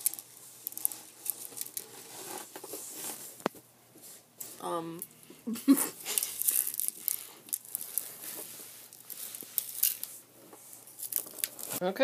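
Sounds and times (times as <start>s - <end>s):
plastic tray crinkling: 10.9s - 11.8s.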